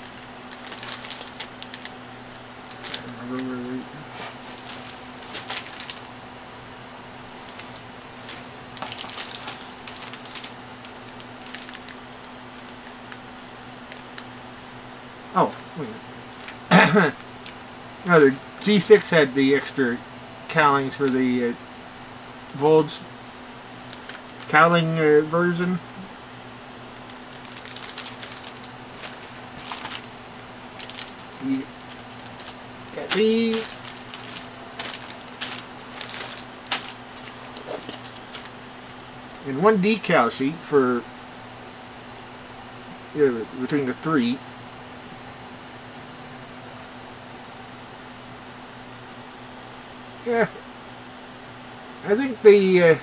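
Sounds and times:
plastic bags crinkling: 0.0 - 6.2, 7.3 - 13.2, 15.4 - 18.3, 23.7 - 24.6, 26.8 - 39.2
steady hum: 0.0 - 53.0.

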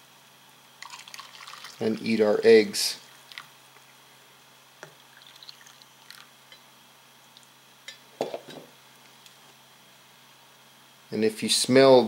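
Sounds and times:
tea pouring into a cup: 0.8 - 2.5, 3.1 - 3.5, 4.9 - 6.3.

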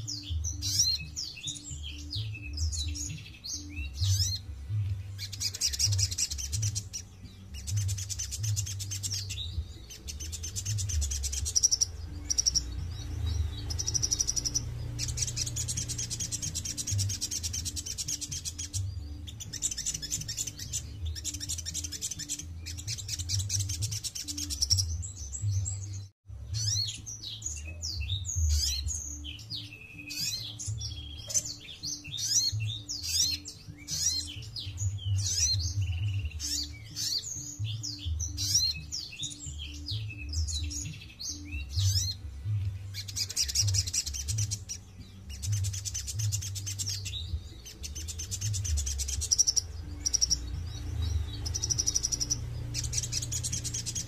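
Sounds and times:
sharp bird chirps and whistles: 0.0 - 4.4, 5.2 - 42.2, 43.0 - 54.0
bird singing fast high trills: 5.2 - 25.5, 43.0 - 54.0.

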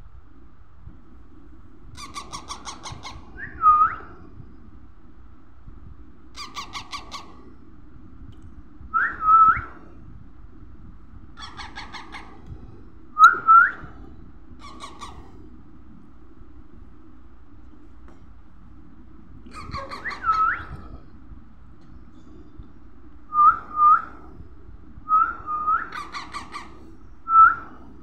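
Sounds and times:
parakeet chick chattering: 2.0 - 3.2, 11.4 - 12.4, 14.6 - 15.2, 19.5 - 20.5, 25.9 - 26.8
parakeet chick squawks: 2.0 - 3.3, 6.4 - 7.3, 11.4 - 12.4, 14.6 - 15.2, 19.5 - 20.7, 25.9 - 26.8.

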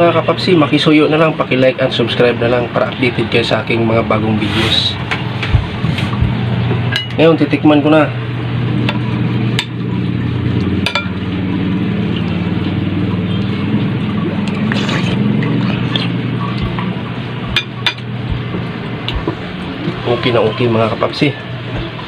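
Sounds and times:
steady low hum: 0.0 - 22.0
person eating soup: 14.5 - 16.2.

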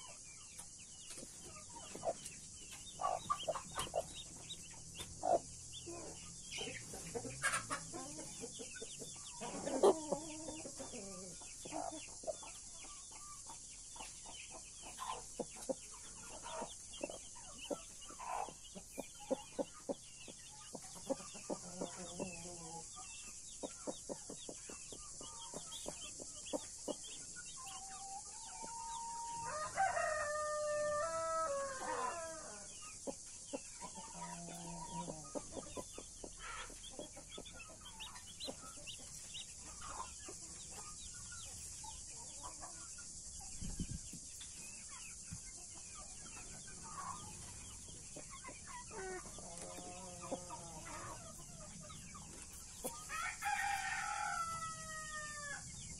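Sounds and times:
hens clucking: 0.0 - 23.0, 46.0 - 55.5
rooster crowing: 28.7 - 32.7, 53.1 - 55.7.

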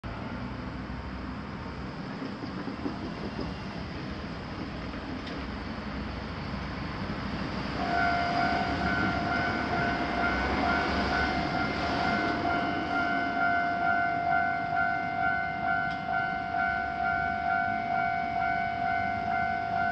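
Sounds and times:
road traffic rumbling: 0.0 - 19.9
level crossing warning bell ringing: 7.8 - 19.9.

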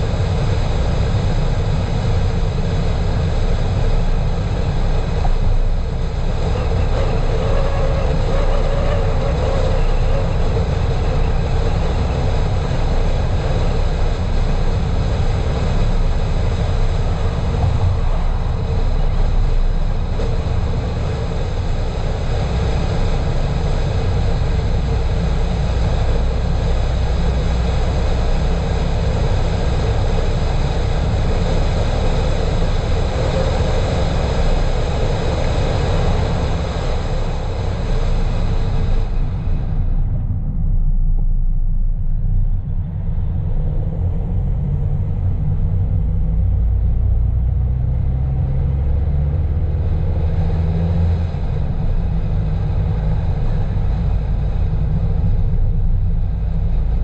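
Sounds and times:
car engine hum: 0.0 - 57.0
tyre and road rumble: 0.0 - 57.0.

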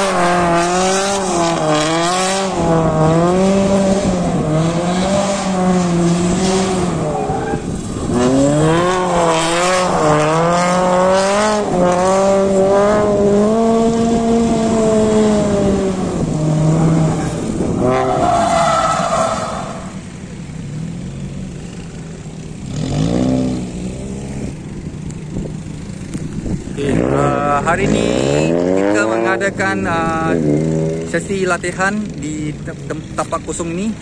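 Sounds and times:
car engine revving: 0.0 - 34.0
tyres squealing: 16.8 - 20.0.

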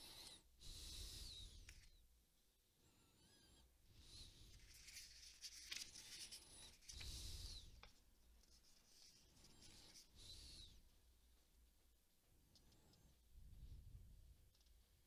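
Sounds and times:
soft hiss: 3.0 - 15.0
faint rustling: 4.1 - 11.5.

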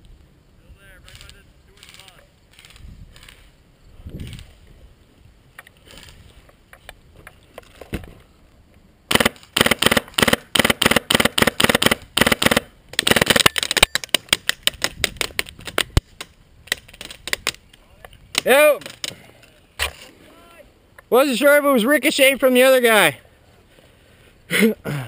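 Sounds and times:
airsoft gunfire cracks: 9.1 - 15.0.

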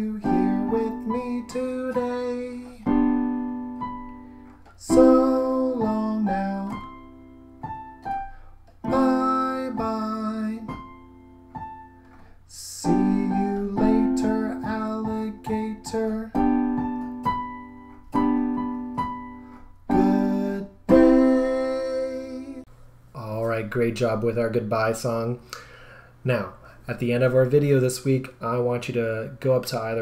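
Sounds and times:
piano playing short notes and chords: 0.0 - 22.6.

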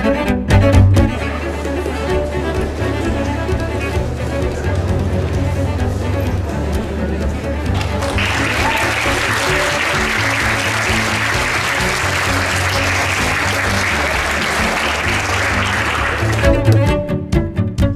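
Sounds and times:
music playing: 0.0 - 17.9
applause: 7.8 - 16.9.

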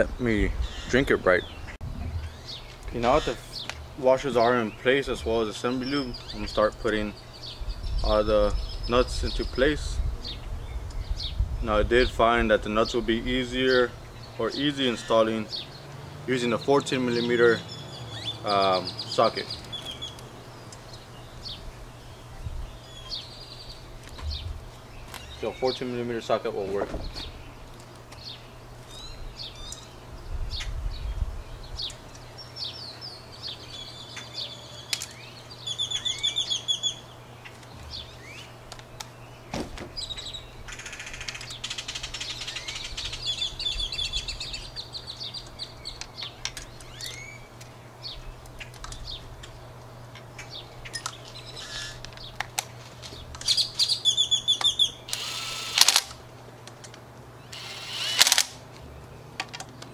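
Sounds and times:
small birds chirping: 0.0 - 59.9
cordless drill spinning: 55.1 - 56.0, 57.5 - 58.5.

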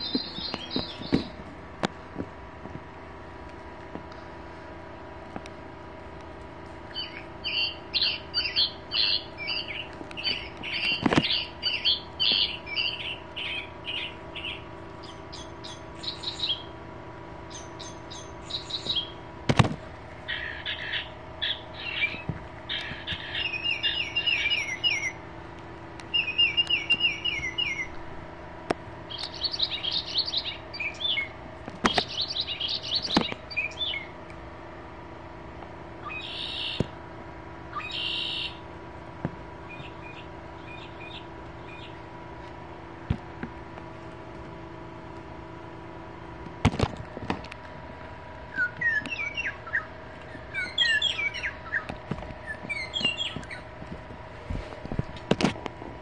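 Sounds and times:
recorded bird songs from toys: 0.0 - 1.3, 6.9 - 16.7, 17.5 - 19.2, 20.3 - 25.2, 26.1 - 28.0, 29.1 - 34.1, 36.0 - 36.8, 37.7 - 38.6, 39.7 - 42.0, 48.5 - 53.7
chirps: 0.0 - 1.4, 6.9 - 16.8, 17.4 - 19.3, 20.2 - 25.3, 26.0 - 28.1, 29.0 - 34.2, 36.0 - 37.0, 37.7 - 38.6, 39.6 - 42.2, 48.4 - 53.8.

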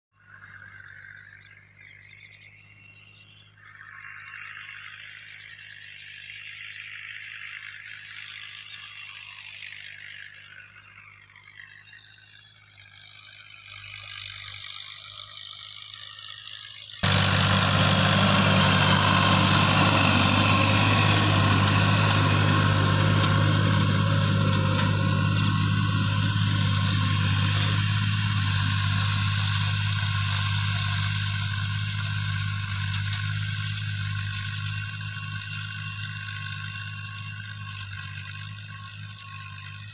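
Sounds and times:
tractor diesel engine running: 17.0 - 39.9.

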